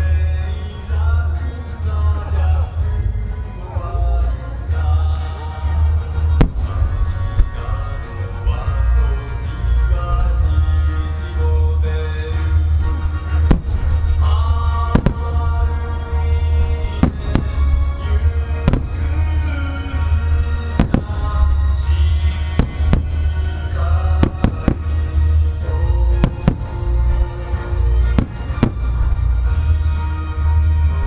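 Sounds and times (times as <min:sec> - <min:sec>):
deep rumble: 0:00.0 - 0:31.0
music: 0:00.0 - 0:31.0
fireworks bursting: 0:06.2 - 0:08.2, 0:13.1 - 0:30.0.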